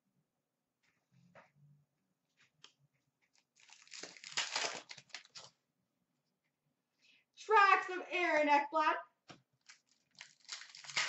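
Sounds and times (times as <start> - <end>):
card pack wrapper tearing: 3.6 - 5.5, 9.6 - 11.0.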